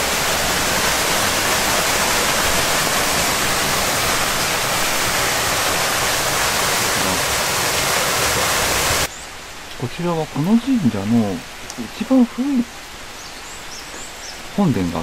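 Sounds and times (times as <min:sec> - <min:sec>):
waterfall rushing: 0:00.0 - 0:09.1.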